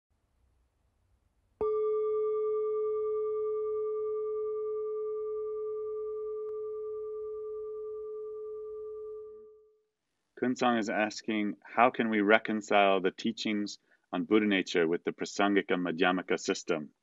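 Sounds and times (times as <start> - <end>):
low ringing chime: 1.6 - 9.6.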